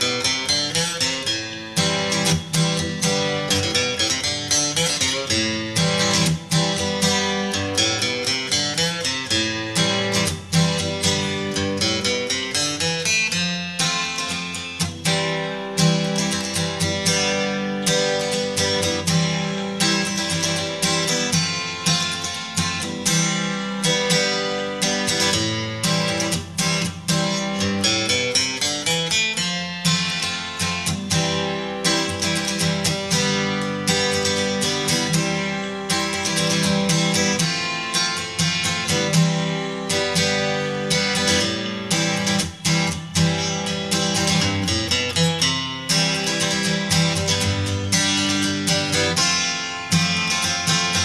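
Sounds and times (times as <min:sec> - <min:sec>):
instrumental music with picked notes: 0:00.0 - 0:51.0
strummed acoustic guitar: 0:00.0 - 0:51.0.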